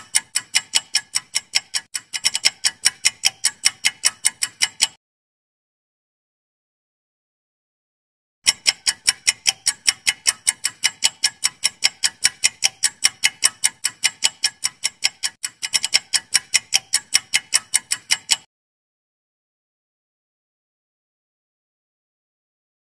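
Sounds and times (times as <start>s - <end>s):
fast clock ticking: 0.0s - 5.0s, 8.4s - 18.5s.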